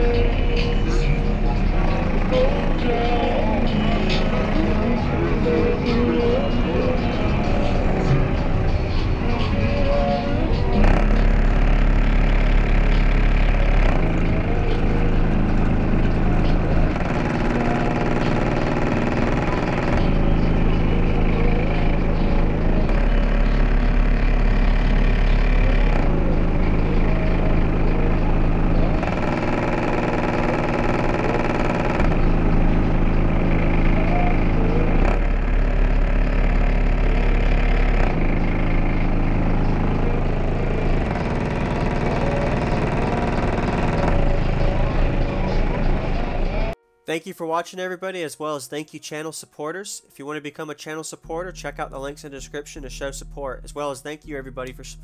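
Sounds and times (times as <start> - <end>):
subwoofers playing deep bass: 0.0 - 46.8, 51.4 - 55.0.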